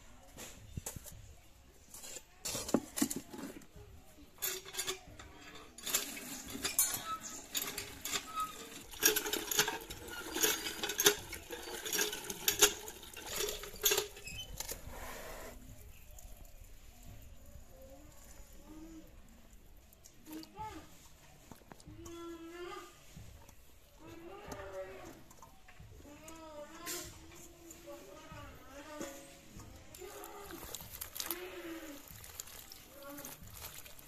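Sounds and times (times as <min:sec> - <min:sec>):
steel bowl clattering: 0:04.3 - 0:14.9, 0:29.0 - 0:34.0
hand pump handle clanking: 0:04.4 - 0:14.9
water pouring into plastic bucket: 0:05.8 - 0:14.8, 0:30.1 - 0:34.0.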